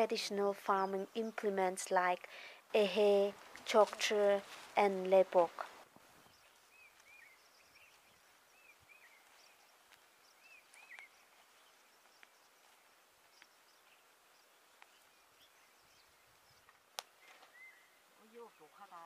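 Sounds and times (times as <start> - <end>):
soft bird chirps: 6.2 - 19.0
faint ticks: 10.7 - 11.2, 12.0 - 13.9, 14.7 - 15.0, 16.6 - 17.4.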